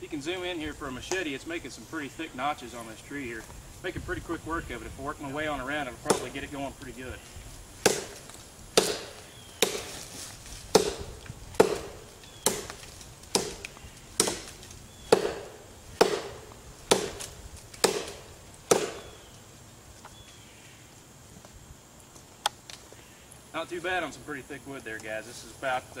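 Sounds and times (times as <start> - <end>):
machete chopping into wood: 6.0 - 6.4, 7.8 - 10.1, 10.7 - 19.2.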